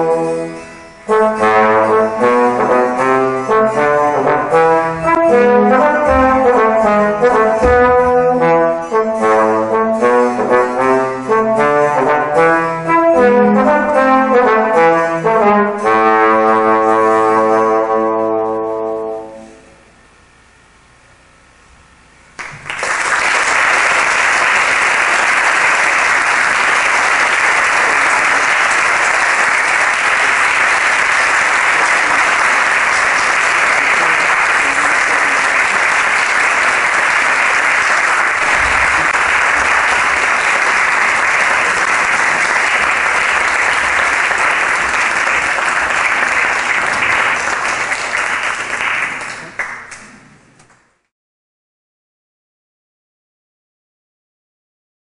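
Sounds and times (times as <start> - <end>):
audience applauding: 22.4 - 50.0.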